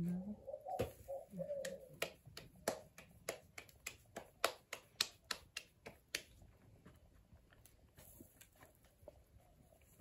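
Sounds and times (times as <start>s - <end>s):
hands slapping dough: 0.8s - 6.9s.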